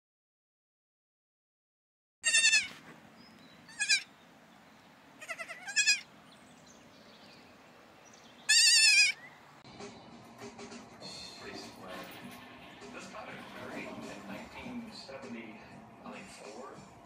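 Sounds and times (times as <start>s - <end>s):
baby goats bleating: 2.2s - 2.8s, 3.7s - 4.1s, 5.2s - 6.1s, 8.4s - 9.2s.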